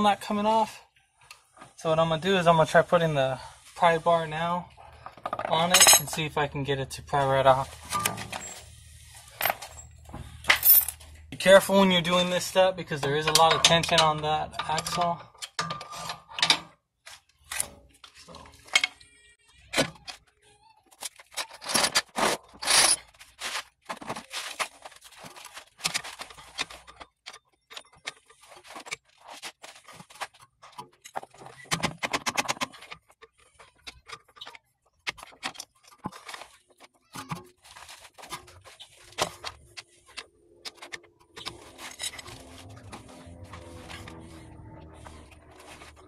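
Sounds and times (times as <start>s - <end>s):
metal clinks knocks and scrapes: 4.9s - 6.3s, 7.8s - 11.2s, 21.3s - 46.0s.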